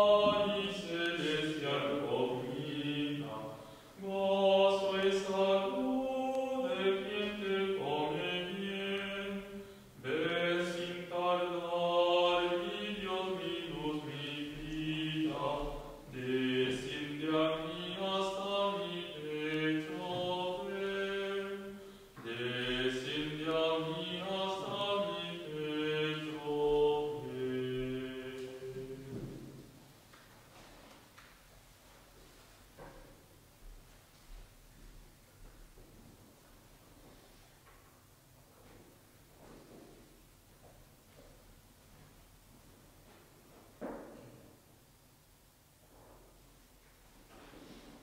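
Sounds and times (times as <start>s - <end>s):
voices singing a hymn: 0.0s - 29.7s
singers breathing: 3.5s - 4.0s, 9.5s - 10.0s, 21.7s - 22.2s.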